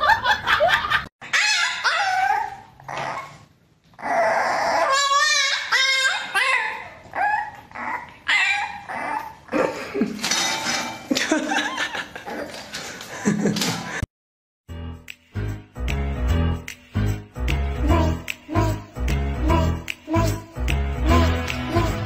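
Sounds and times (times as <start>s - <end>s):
puppy whining and yipping: 1.2s - 9.5s
dog whining drawn-out: 1.3s - 9.5s.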